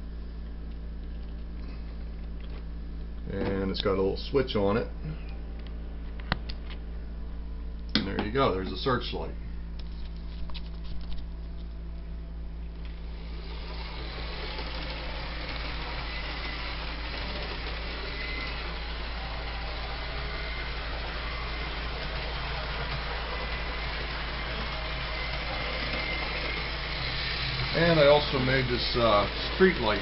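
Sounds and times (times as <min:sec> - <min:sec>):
low hum: 0:00.0 - 0:30.0
model train motor whirring: 0:12.9 - 0:30.0.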